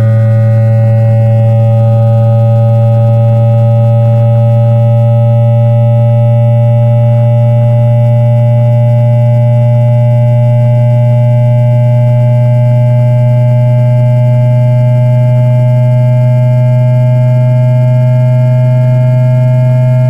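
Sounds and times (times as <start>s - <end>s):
train motor electric hum rising: 0.0s - 17.2s.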